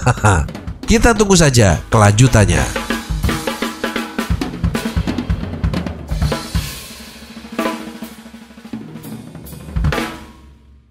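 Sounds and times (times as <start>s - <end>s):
fast drum hits: 0.2s - 10.4s.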